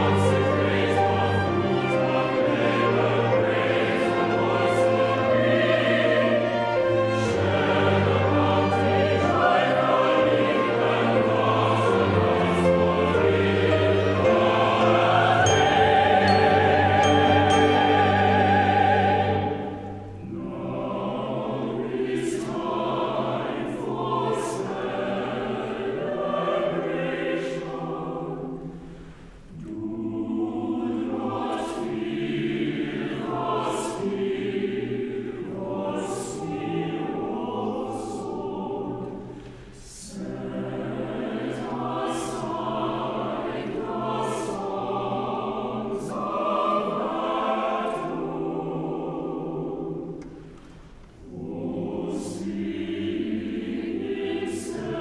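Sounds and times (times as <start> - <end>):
string quartet playing: 0.0 - 21.0
chamber choir singing: 0.0 - 55.0.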